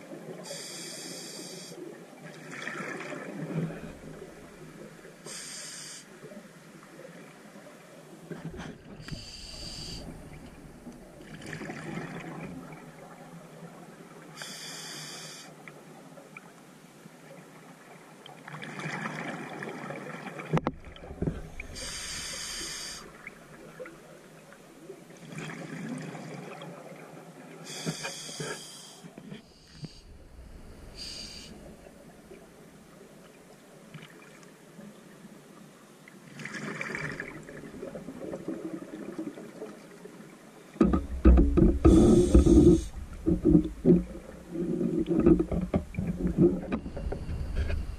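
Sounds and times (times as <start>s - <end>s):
regulator inhale hiss: 0.4s - 1.8s, 5.2s - 6.2s, 9.0s - 10.5s, 14.4s - 15.6s, 21.5s - 23.2s, 27.7s - 31.9s, 41.8s - 43.0s.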